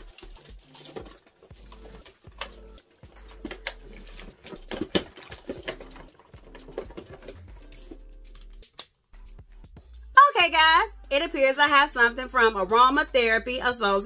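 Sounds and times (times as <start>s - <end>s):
packaging rustling and clicking: 0.0s - 9.0s.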